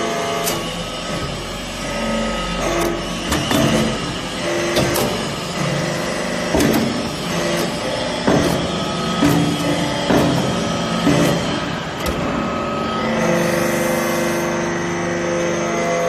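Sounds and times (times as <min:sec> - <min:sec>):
hydraulic press low hum: 0:00.0 - 0:16.0
sharp metal clanks and knocks: 0:02.7 - 0:12.4.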